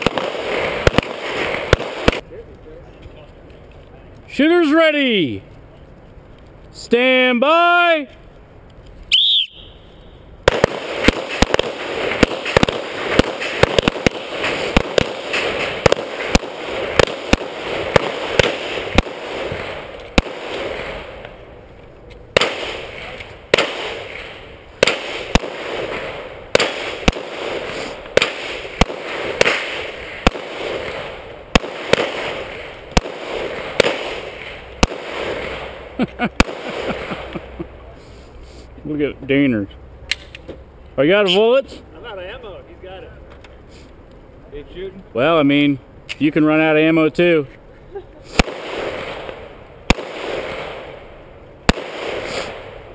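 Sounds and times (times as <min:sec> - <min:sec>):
rapid handgun fire: 0:00.0 - 0:02.2, 0:10.4 - 0:21.1, 0:22.4 - 0:35.8, 0:36.4 - 0:37.1, 0:48.3 - 0:51.1, 0:51.7 - 0:52.9.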